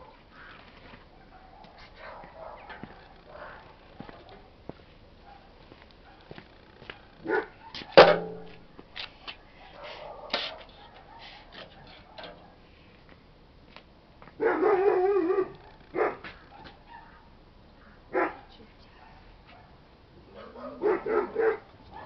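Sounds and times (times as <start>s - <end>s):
dog barking: 1.1s - 4.5s, 5.2s - 8.2s, 9.7s - 12.6s, 14.4s - 17.3s, 18.1s - 22.0s
metal clank ringing: 8.0s - 8.8s.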